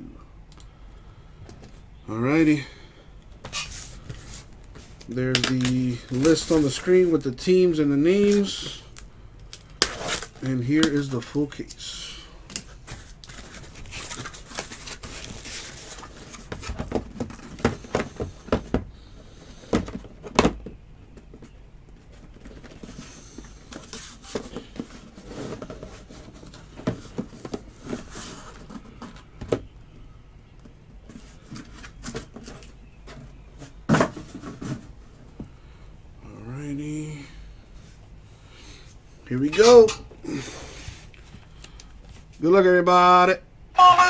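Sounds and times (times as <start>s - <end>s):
cardboard rustling and scraping: 3.4s - 7.2s, 12.6s - 20.6s, 21.2s - 29.6s, 31.0s - 35.4s.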